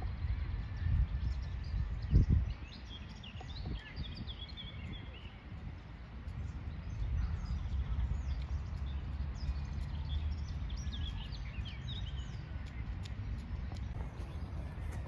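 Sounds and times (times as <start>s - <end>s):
wind buffeting microphone: 0.0s - 15.0s
small birds chirping: 1.2s - 15.0s.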